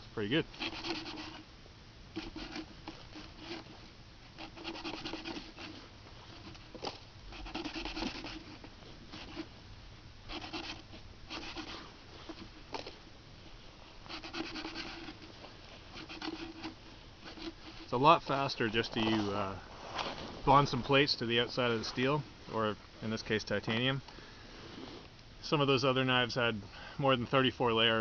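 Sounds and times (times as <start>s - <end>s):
knife scraping wooden pole: 0.5s - 1.4s, 2.2s - 3.7s, 4.4s - 5.8s, 6.4s - 9.5s, 10.3s - 12.5s, 14.0s - 18.0s.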